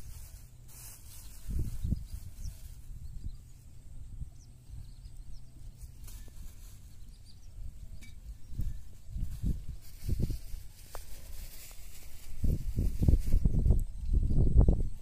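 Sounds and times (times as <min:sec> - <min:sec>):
low outdoor rumble: 0:00.0 - 0:12.9
plastic bags rustling: 0:08.6 - 0:13.6.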